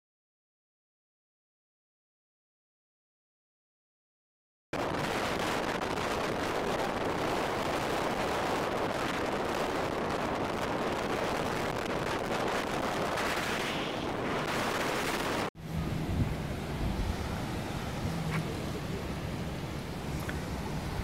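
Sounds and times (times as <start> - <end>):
dense rushing roar: 4.8 - 21.0.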